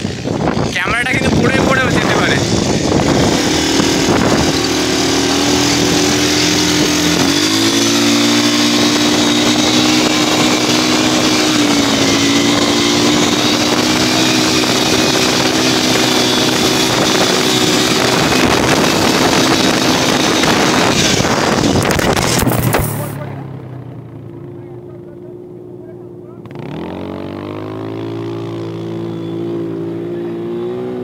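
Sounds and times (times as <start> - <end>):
wind rush on microphone: 0.0 - 23.1
quad bike engine running: 0.0 - 31.0.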